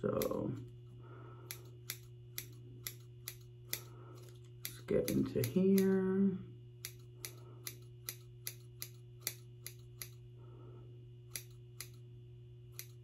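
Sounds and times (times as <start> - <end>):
scissors snipping hair: 0.0 - 0.8, 1.4 - 6.1, 6.8 - 10.2, 11.3 - 12.0, 12.7 - 13.0.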